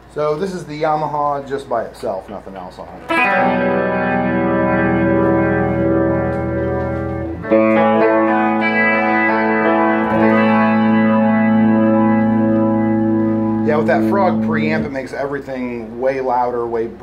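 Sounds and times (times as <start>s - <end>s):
electric guitar chords: 3.0s - 15.4s.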